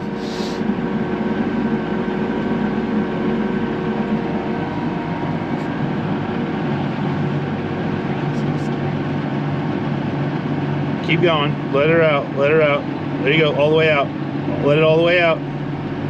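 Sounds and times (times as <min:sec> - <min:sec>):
steady whining tones: 0:00.0 - 0:16.0
tractor diesel engine rumble: 0:00.0 - 0:16.0.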